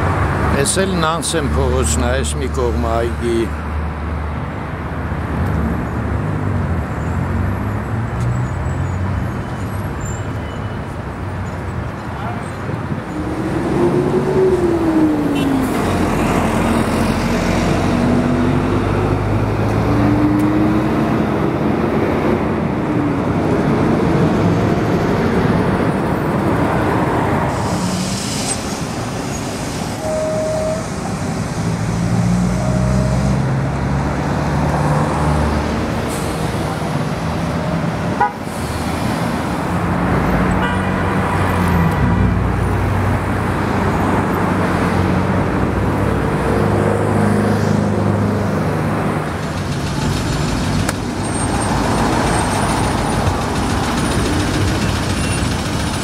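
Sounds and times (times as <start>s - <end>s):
road traffic rumble: 0.0s - 56.0s
car horn toot: 30.0s - 30.9s, 38.2s - 38.4s.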